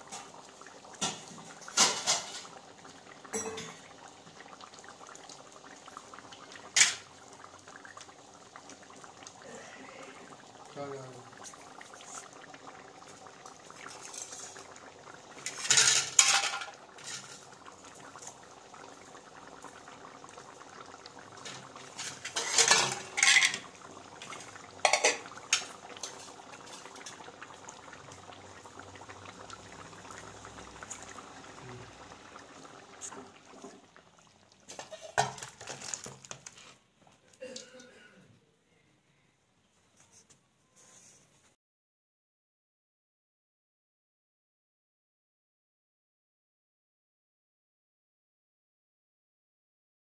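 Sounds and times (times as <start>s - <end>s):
curry boiling in a pot: 0.0s - 37.2s
metal utensil scraping a pot: 15.4s - 17.5s, 21.9s - 23.7s.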